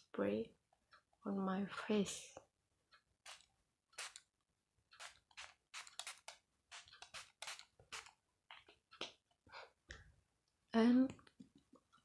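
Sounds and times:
spray bottle hissing spurts: 0:03.3 - 0:04.2, 0:05.0 - 0:08.1.

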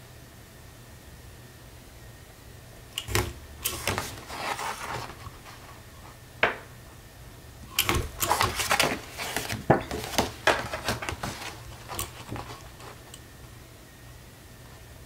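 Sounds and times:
paper rustling: 0:03.1 - 0:06.2, 0:07.8 - 0:13.2.

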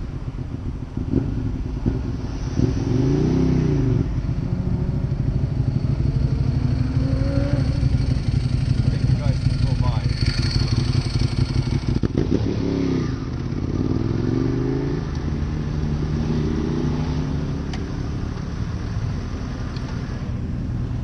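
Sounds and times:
motorcycle engines revving: 0:00.0 - 0:21.0
motorcycle engine idling: 0:05.0 - 0:12.1.

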